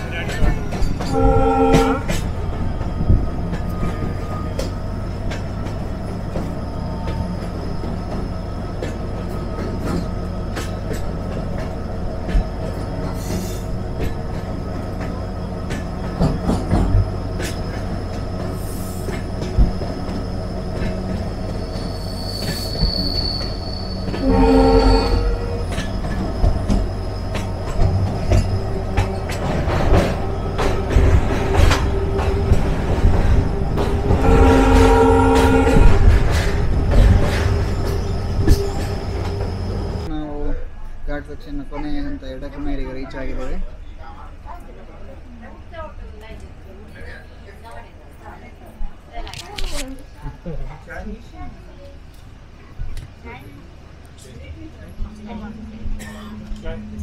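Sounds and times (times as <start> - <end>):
wheels clacking over rail joints: 0.0 - 40.1
train rumble: 0.0 - 57.0
train horn blast: 1.1 - 2.2, 24.1 - 25.8, 33.9 - 36.2
high wheel squeal: 17.2 - 29.4.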